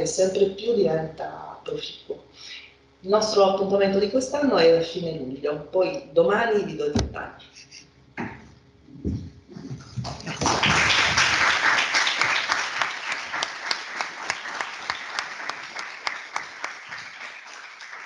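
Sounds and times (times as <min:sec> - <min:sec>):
audience applauding: 0:10.0 - 0:18.0.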